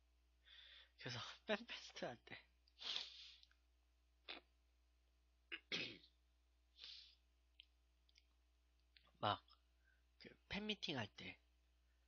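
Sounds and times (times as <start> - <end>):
breath puffs into microphone: 2.8 - 3.4.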